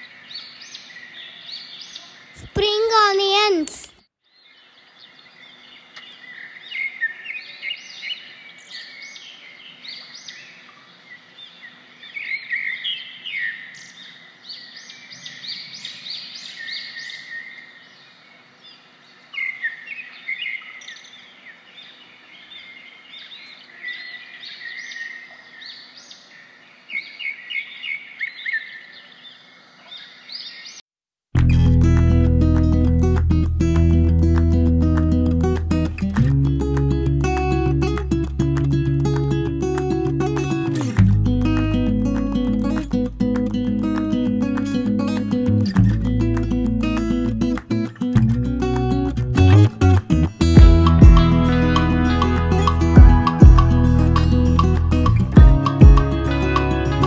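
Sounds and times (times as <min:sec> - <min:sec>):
guitar music: 0:31.4 - 0:57.0.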